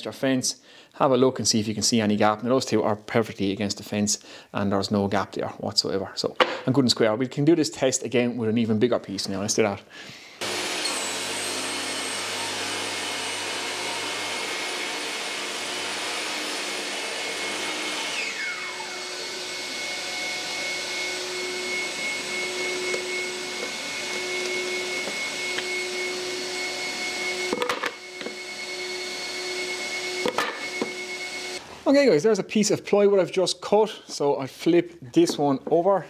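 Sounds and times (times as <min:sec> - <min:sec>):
dust extractor humming: 0:10.4 - 0:31.6
table saw motor winding down: 0:10.4 - 0:31.6.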